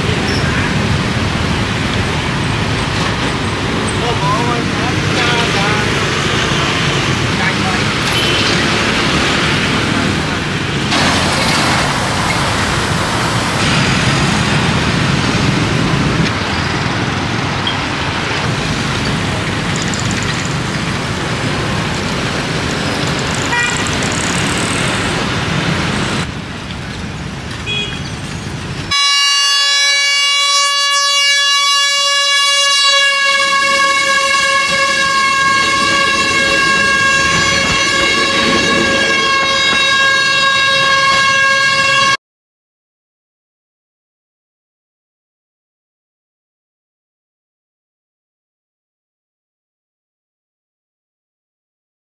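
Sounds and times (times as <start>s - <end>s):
motorbikes and cars passing: 0.0s - 29.0s, 33.0s - 42.2s
train horn: 23.5s - 23.8s, 28.9s - 42.2s.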